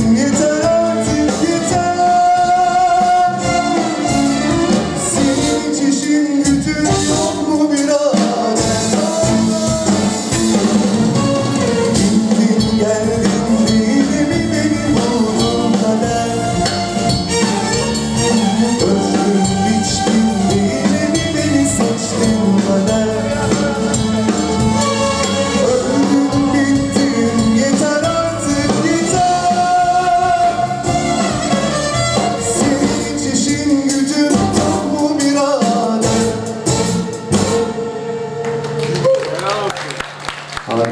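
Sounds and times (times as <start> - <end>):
male singer: 0.0 - 10.6, 11.7 - 36.6
drum kit: 0.0 - 37.9
bass guitar: 0.0 - 39.3
electric violin: 0.8 - 7.5, 8.9 - 12.6, 14.2 - 35.1.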